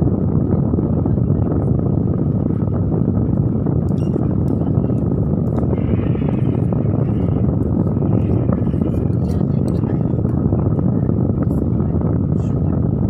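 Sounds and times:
loud low-pitched noise: 0.0s - 13.0s.

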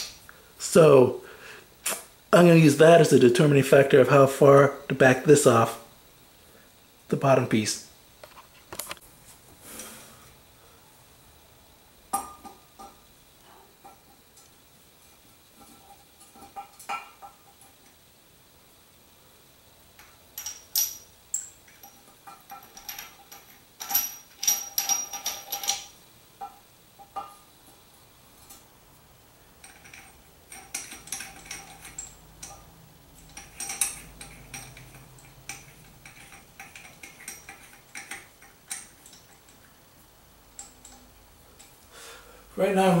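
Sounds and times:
metal valve parts clicking: 20.0s - 27.4s, 29.6s - 39.7s, 40.5s - 41.8s.

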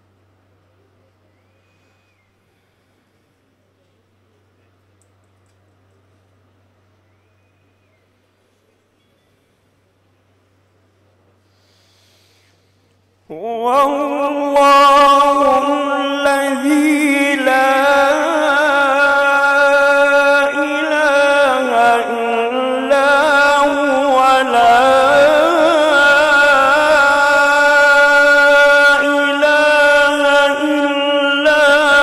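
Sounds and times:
man reciting melodically: 13.3s - 32.0s.

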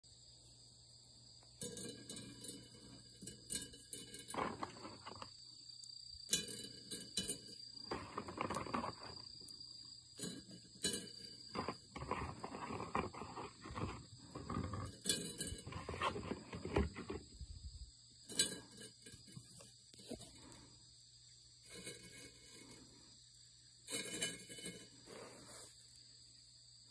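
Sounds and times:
high insect trill: 0.0s - 26.9s
chestnuts rustling on wire mesh: 1.6s - 5.4s, 6.2s - 17.3s, 21.6s - 23.0s, 23.8s - 25.8s.

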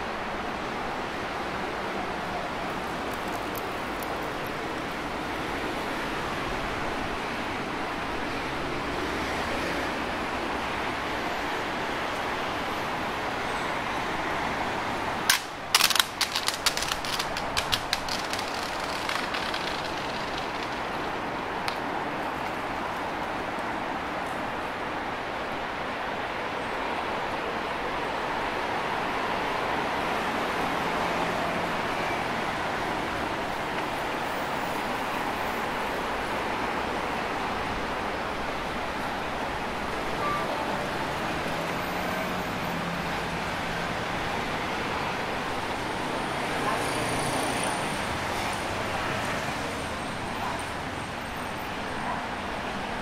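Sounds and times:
city street noise: 0.0s - 53.0s
rapid sharp clacks: 15.3s - 21.8s.

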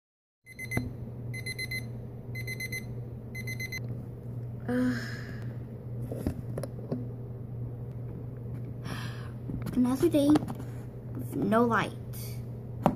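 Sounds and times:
digital alarm clock beeping: 0.5s - 3.8s
steady low hum: 0.5s - 12.9s.

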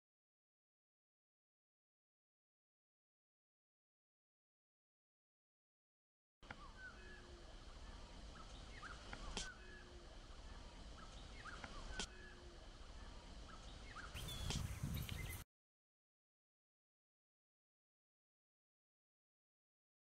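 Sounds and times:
birds chirping and calling: 6.4s - 15.4s.

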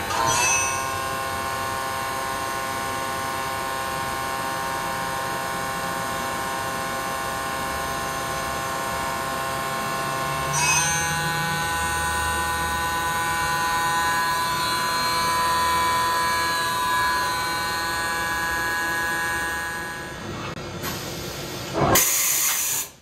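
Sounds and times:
machine whine: 0.0s - 22.8s
loud hiss: 20.8s - 23.0s.

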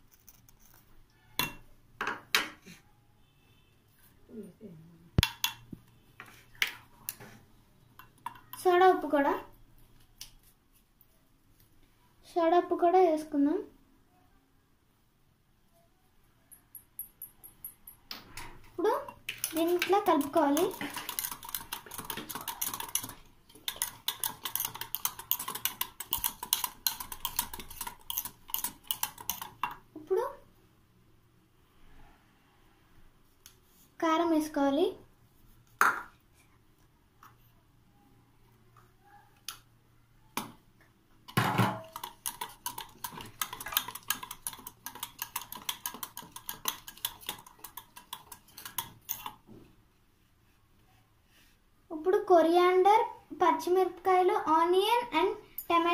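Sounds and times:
whisk clicking against metal bowl: 19.3s - 29.8s, 41.7s - 49.4s.

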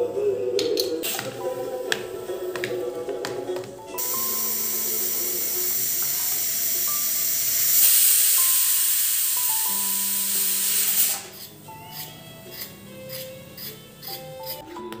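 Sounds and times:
gentle background music: 0.0s - 15.0s
steady loud hiss: 4.0s - 11.6s.

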